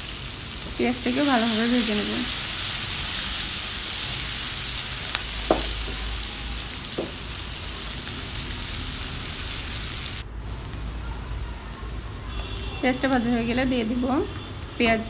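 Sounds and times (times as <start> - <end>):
onions sizzling in hot oil: 0.0 - 11.0, 12.5 - 15.0
spatula knocking against pan: 5.5 - 6.0, 7.0 - 7.2.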